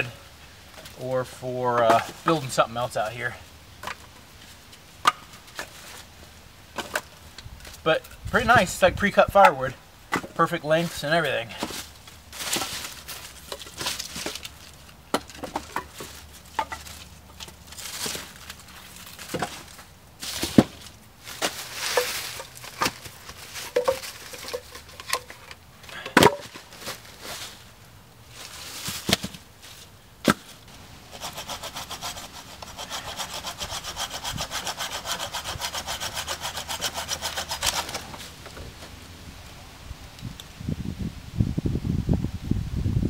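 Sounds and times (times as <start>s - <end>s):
wooden sticks clattering: 11.5s - 27.6s
hand saw cutting wood: 31.1s - 38.4s.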